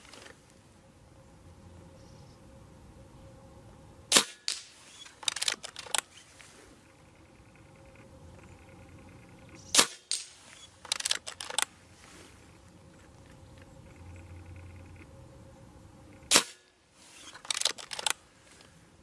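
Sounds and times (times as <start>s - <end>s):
air rifle shot cracks: 4.1s - 6.0s, 9.7s - 10.3s, 16.3s - 16.7s
cocking lever metallic clicks: 4.1s - 6.1s, 9.7s - 11.7s, 17.2s - 18.2s.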